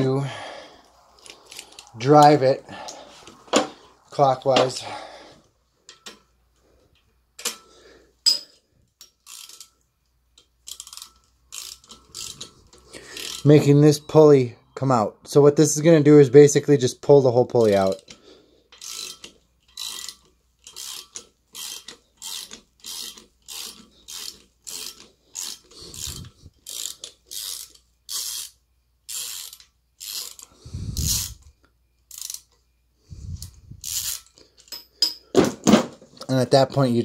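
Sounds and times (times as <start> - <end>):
ratcheting wrench clicking: 1.1 - 2.0, 7.0 - 13.5, 17.6 - 32.6, 33.4 - 35.2.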